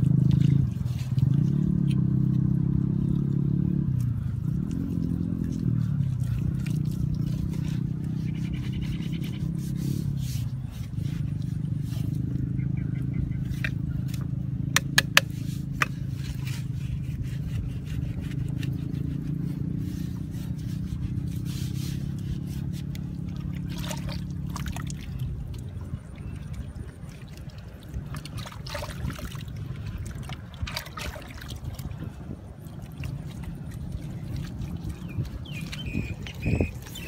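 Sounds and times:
wet mud squelching and scraping: 0.0s - 37.0s
bamboo knocks: 14.8s - 16.0s.

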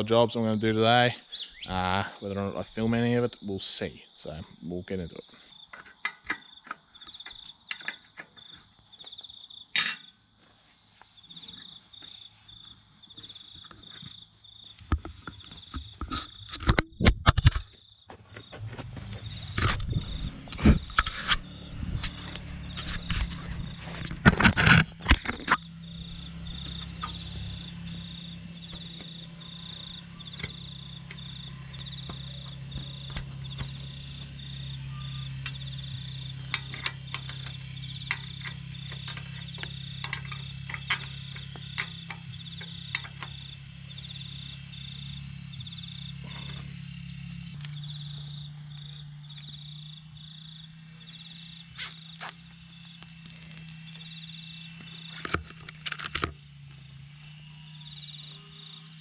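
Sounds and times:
insect chirping: 0.0s - 59.0s
low steady hum: 18.6s - 59.0s.

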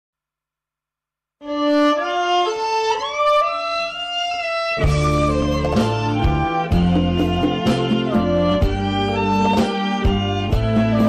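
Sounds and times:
violin melody with sliding notes: 1.4s - 11.0s
band with bass and beat: 4.8s - 11.0s.

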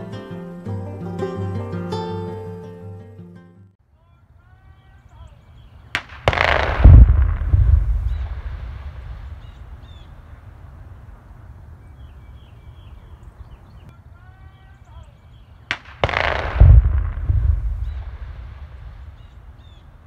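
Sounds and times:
dynamite blast: 5.8s - 11.8s, 15.7s - 20.0s.

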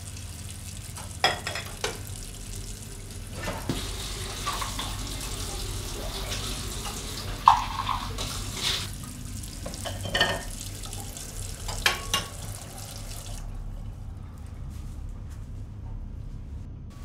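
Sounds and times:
tap water running into sink: 0.0s - 13.4s.

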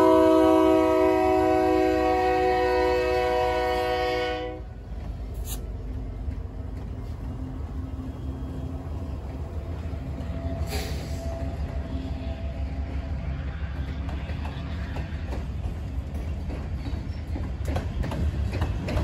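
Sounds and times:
locomotive air horn chord: 0.0s - 4.7s
train rumbling past: 0.0s - 19.0s.

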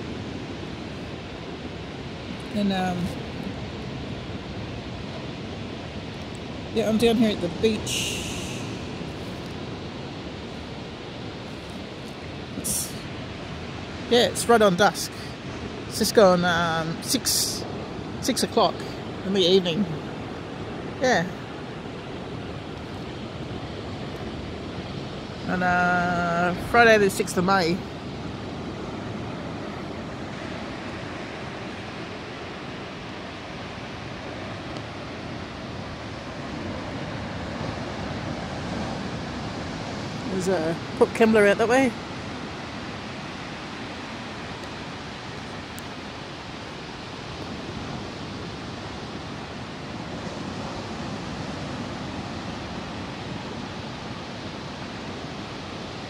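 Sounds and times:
surf washing onto beach: 0.0s - 56.0s
wind on microphone: 0.0s - 56.0s.

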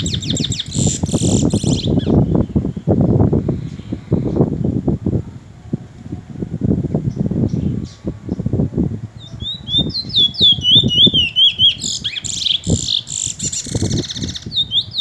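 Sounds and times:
finch singing whistled notes: 0.0s - 2.6s, 9.2s - 15.0s.

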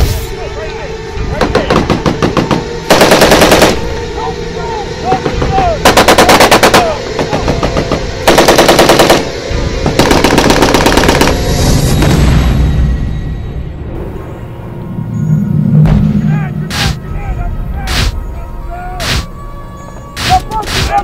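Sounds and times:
machine gun firing bursts: 2.9s - 3.8s, 5.8s - 6.8s, 8.3s - 9.3s, 10.0s - 11.4s.

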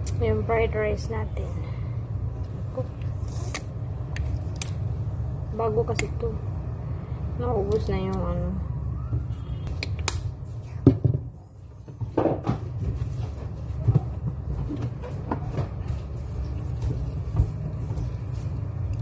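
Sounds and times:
steady low rumble: 0.0s - 11.8s.

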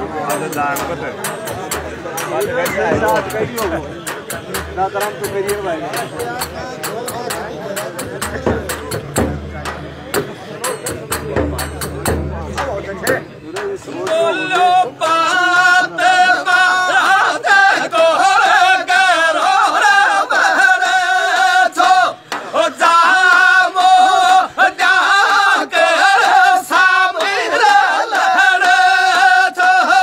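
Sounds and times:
frame drum strokes: 0.3s - 14.3s
men singing folk song: 13.6s - 30.0s.

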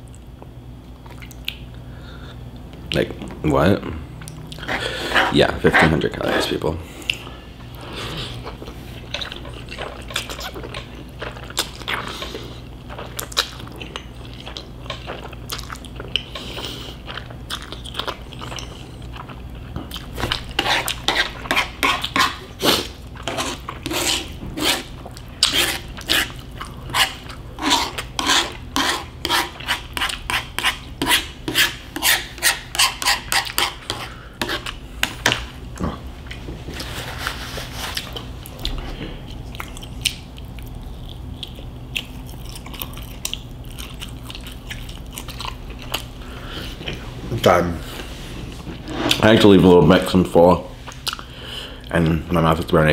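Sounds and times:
chewing noodles: 7.1s - 30.9s, 37.9s - 47.1s.

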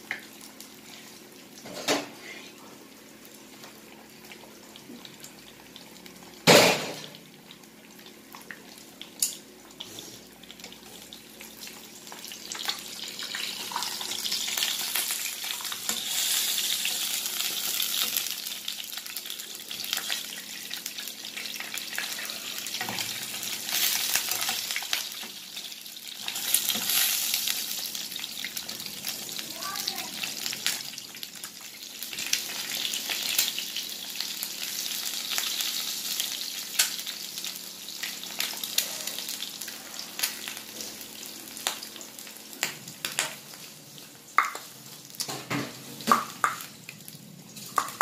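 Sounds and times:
egg sizzling in frying pan: 0.0s - 48.0s.

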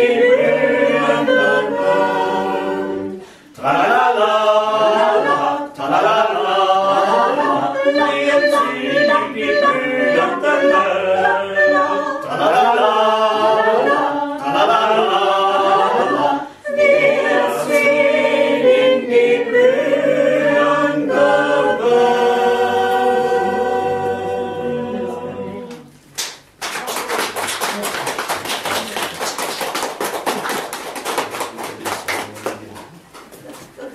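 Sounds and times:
mixed choir singing: 0.0s - 26.0s.

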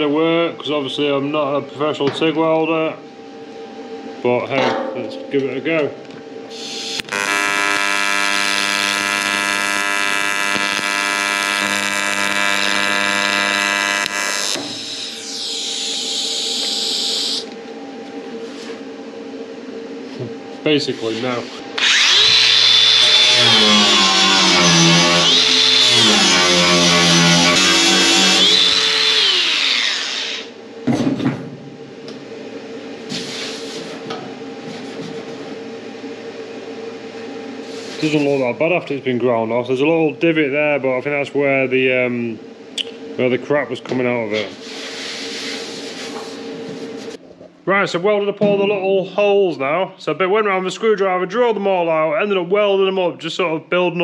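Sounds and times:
low steady hum: 0.0s - 7.8s
welding arc buzzing: 6.4s - 17.6s, 21.0s - 30.6s
angle grinder whine winding down: 6.5s - 17.6s, 21.0s - 30.6s
brief scrape: 33.1s - 34.0s.

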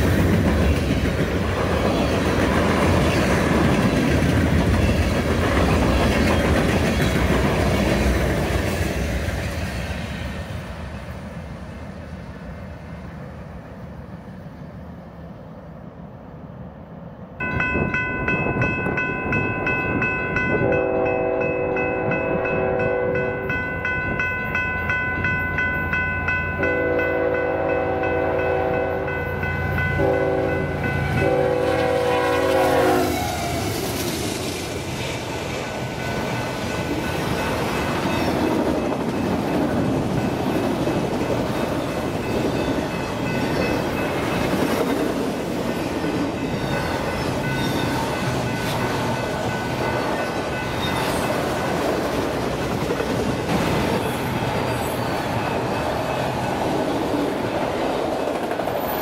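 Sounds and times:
freight train rumble: 0.0s - 59.0s
locomotive horn: 20.6s - 23.5s, 26.6s - 29.3s, 29.9s - 33.6s.

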